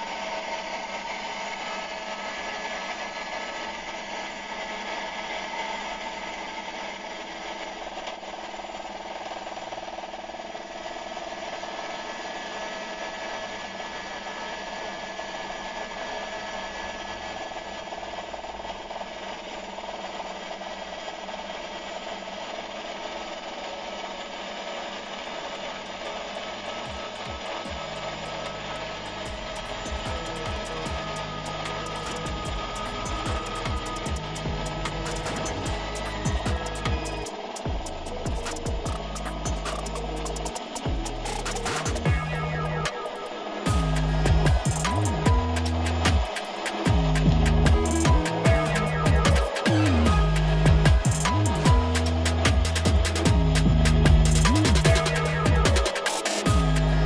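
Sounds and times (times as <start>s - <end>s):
helicopter engine and rotor in cabin: 23.4s - 57.0s.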